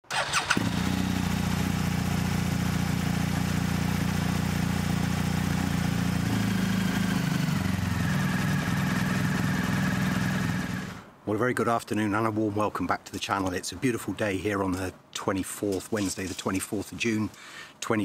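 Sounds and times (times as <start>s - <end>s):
motorcycle engine idling: 0.1s - 11.0s.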